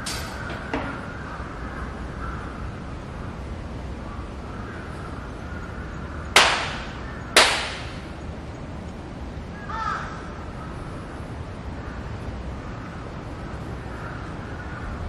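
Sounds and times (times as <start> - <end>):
crow cawing: 0.4 - 2.7, 4.5 - 7.5, 9.6 - 10.7, 11.8 - 15.0
sharp hand claps with echo: 6.4 - 8.0.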